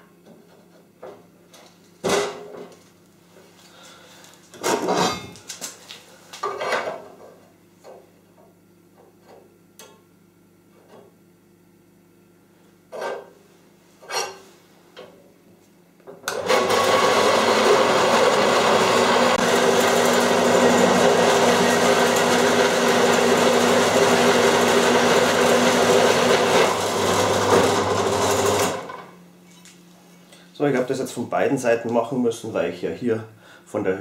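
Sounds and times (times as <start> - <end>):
band saw cutting metal: 16.4 - 28.9.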